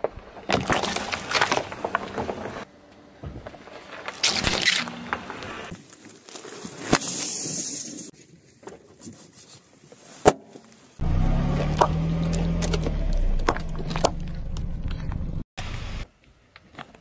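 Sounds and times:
car engine hum: 11.0 - 15.5.

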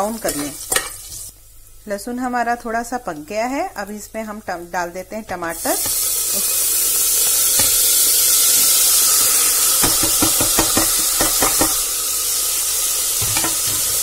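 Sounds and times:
food sizzling in hot oil: 0.0 - 14.0
knocks on a pan: 9.8 - 11.8.

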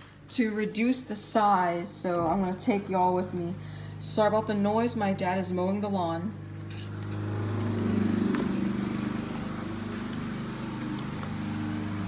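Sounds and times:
lawn mower engine running: 6.4 - 12.0.

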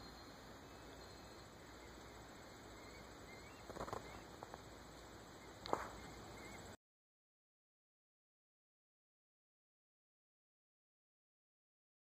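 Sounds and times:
faint outdoor hiss: 0.0 - 6.8.

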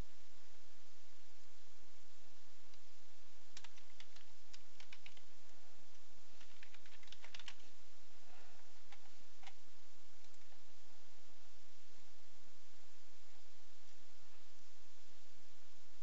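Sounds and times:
computer keyboard typing: 3.5 - 5.3, 6.4 - 7.7, 8.9 - 9.6.

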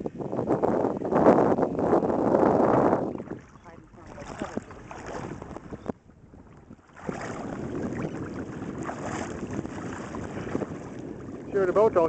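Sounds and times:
wind buffeting microphone: 0.0 - 12.0
water lapping: 2.5 - 12.0.

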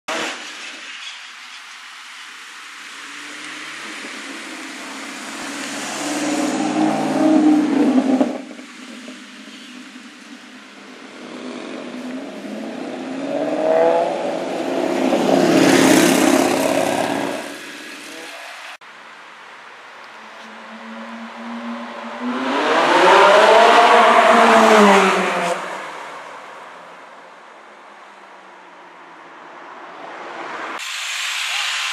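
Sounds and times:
sports car engine accelerating: 20.5 - 25.8.

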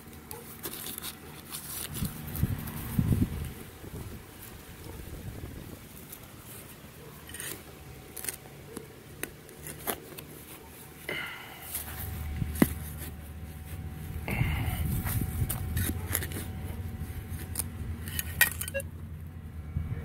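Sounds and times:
hand scraping loose soil: 0.0 - 19.0
scratchy rasps: 5.9 - 18.8.

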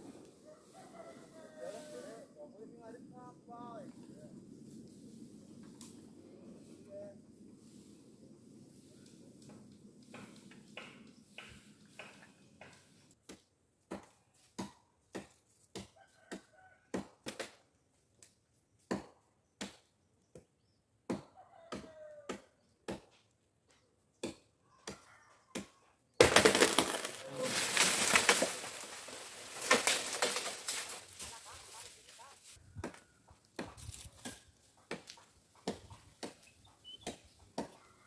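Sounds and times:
wood being chopped: 25.6 - 31.3, 32.8 - 37.8.

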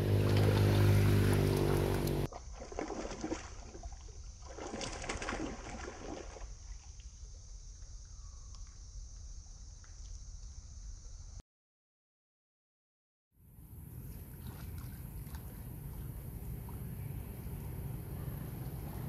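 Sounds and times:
water splashing: 0.0 - 7.0, 14.0 - 17.6.

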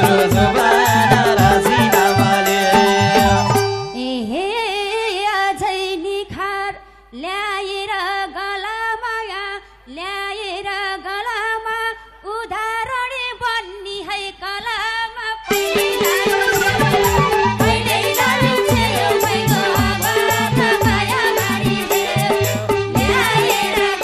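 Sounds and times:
woman singing into microphone: 0.0 - 24.0
instruments playing: 15.5 - 20.8.

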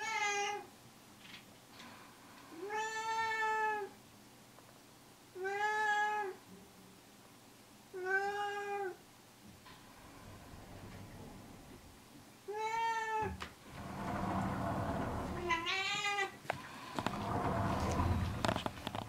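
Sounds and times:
cat meowing: 12.5 - 13.4.

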